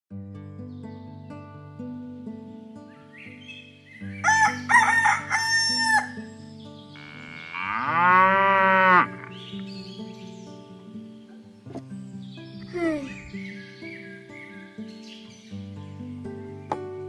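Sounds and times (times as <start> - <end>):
soft background music: 0.1 - 17.0
rooster crowing: 4.2 - 6.2
cow mooing: 7.0 - 9.4.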